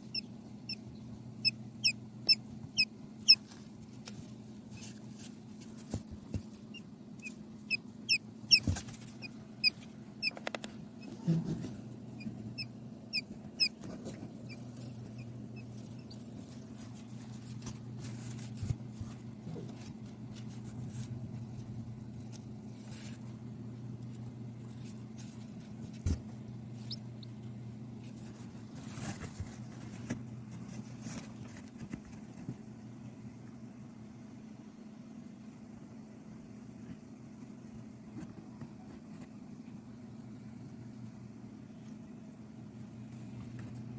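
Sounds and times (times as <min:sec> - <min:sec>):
steady low hum: 0:00.0 - 0:43.9
chick peeping: 0:06.7 - 0:10.4, 0:26.8 - 0:27.4.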